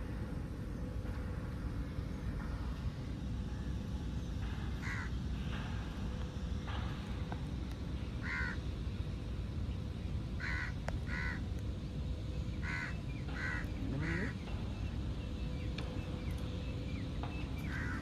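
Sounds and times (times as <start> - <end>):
crow cawing: 4.8 - 5.2, 8.2 - 8.6, 10.4 - 11.4, 12.6 - 14.4, 17.7 - 18.0.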